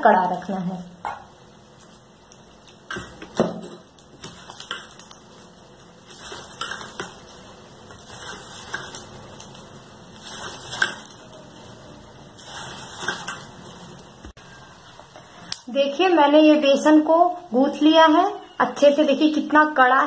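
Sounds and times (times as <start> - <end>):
dough scraping steel bowl: 7.9 - 9.4, 10.1 - 14.0.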